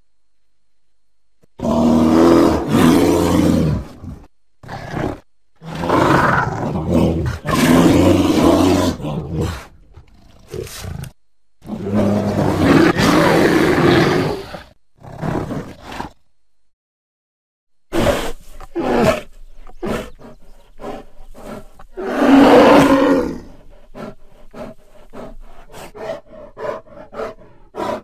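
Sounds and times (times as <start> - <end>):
deep monster roars: 4.7 - 9.7, 22.0 - 23.6.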